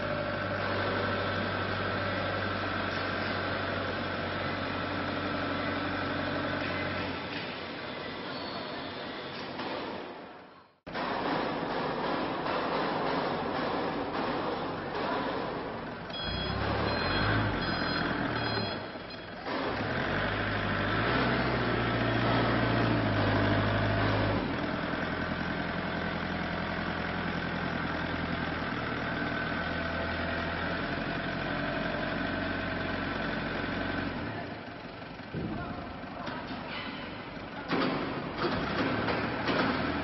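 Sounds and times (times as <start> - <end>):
forklift engine running: 0.0 - 10.1, 10.9 - 40.0
reversing beeps: 16.1 - 19.3.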